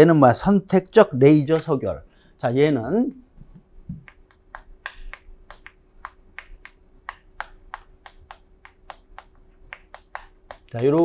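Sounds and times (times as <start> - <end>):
chalk tapping and scratching: 3.6 - 11.0.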